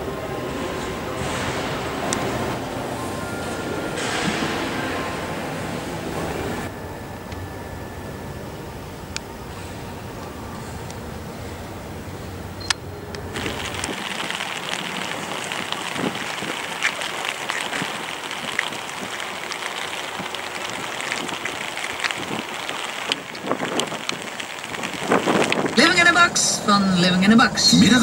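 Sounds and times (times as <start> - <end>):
steady rain falling: 0.0 - 6.7, 9.1 - 27.1
low hum: 0.0 - 28.0
raindrops ticking close by: 12.6 - 26.4.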